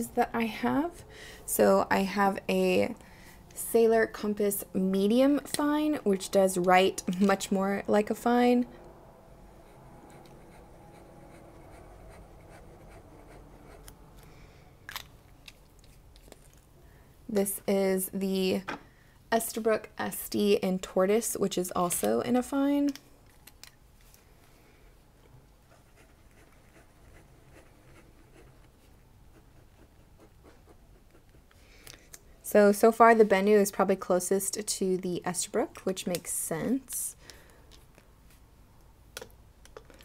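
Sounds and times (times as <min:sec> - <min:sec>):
fountain pen scratching on paper: 0:09.6 - 0:14.0, 0:25.7 - 0:31.6.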